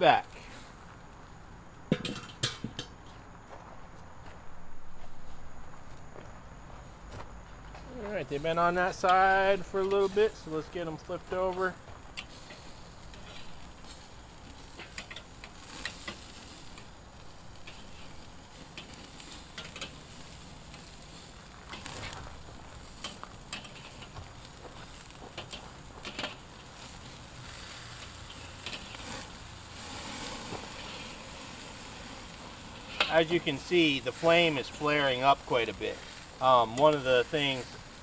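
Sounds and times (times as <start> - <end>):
meat sizzling on a grill: 0.0 - 2.8, 7.9 - 38.0
fat flaring over coals: 0.0 - 38.0
metal spatula scraping a grate: 12.2 - 16.7, 17.6 - 22.2, 22.8 - 24.2, 24.8 - 31.3, 32.7 - 37.8.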